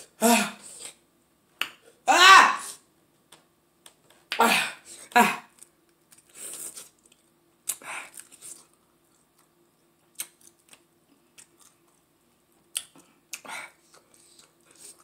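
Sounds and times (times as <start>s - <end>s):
wet mouth smacks and clicks: 10.2s - 10.8s.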